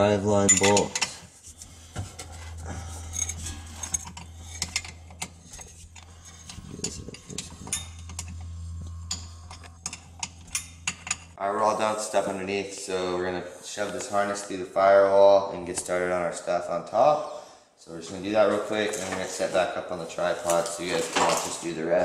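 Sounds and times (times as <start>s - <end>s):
steady low hum: 1.2s - 15.0s.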